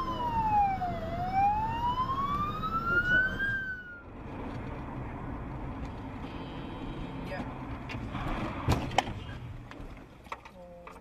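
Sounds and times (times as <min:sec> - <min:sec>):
ambulance siren wailing: 0:00.0 - 0:04.1
car driving road noise: 0:00.0 - 0:11.0.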